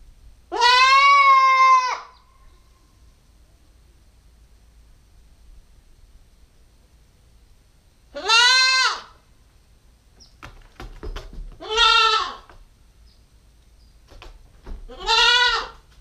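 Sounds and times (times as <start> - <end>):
goat kid bleating: 0.5 - 2.2, 8.1 - 9.2, 11.6 - 12.5, 14.9 - 15.9
light knocks: 10.3 - 11.7, 14.1 - 15.0.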